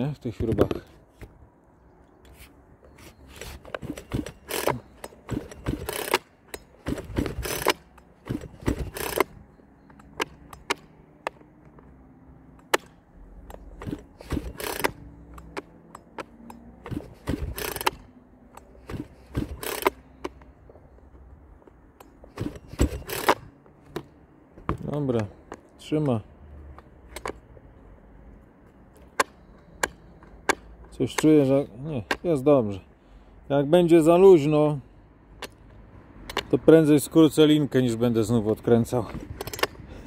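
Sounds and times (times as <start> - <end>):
clicks and scrapes on plastic housing: 29.0 - 32.3.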